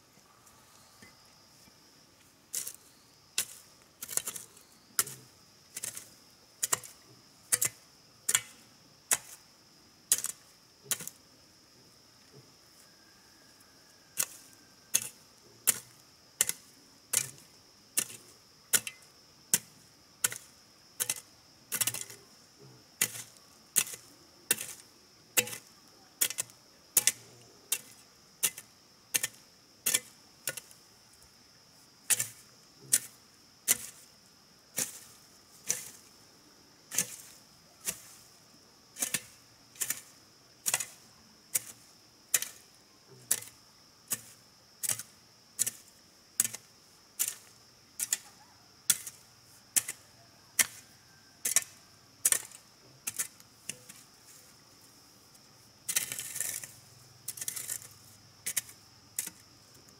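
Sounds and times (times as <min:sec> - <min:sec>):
hand tool striking: 0:25.4 - 0:28.6.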